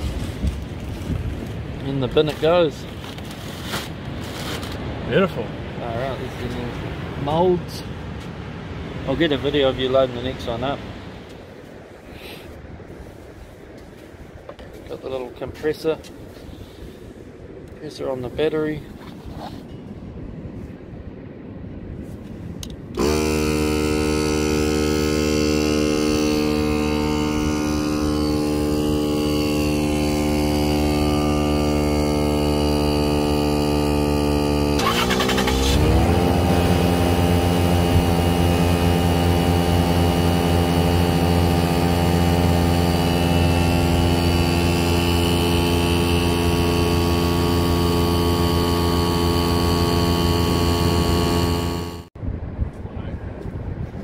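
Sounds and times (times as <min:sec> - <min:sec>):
portable air compressor running: 0:23.0 - 0:52.1.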